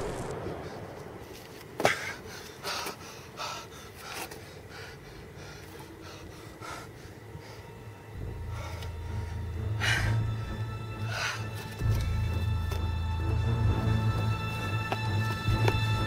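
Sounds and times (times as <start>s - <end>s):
explosion rumble: 0.0s - 1.7s.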